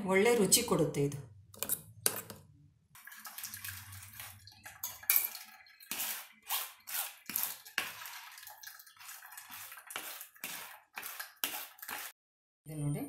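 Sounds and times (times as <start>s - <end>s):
liquid draining: 3.0s - 6.1s, 7.2s - 12.1s
wet pulp squelching in a sieve: 3.0s - 12.2s.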